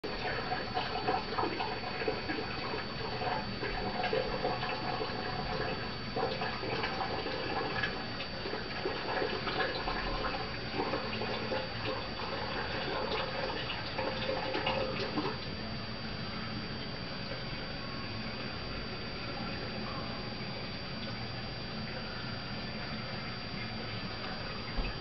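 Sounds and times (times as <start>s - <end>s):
water trickling and splashing: 0.0s - 15.5s
faint high whine: 0.0s - 25.0s.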